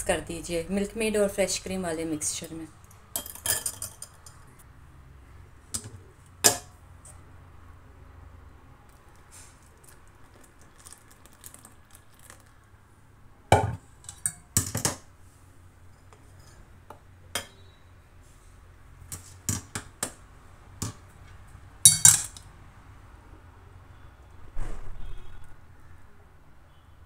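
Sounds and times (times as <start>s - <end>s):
steel kitchenware clinking on glass: 3.2s - 4.4s, 21.9s - 22.4s.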